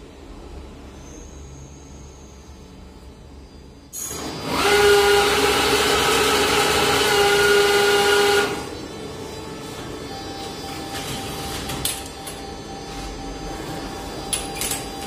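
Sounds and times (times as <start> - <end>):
cash dispenser whirring: 4.1 - 8.8.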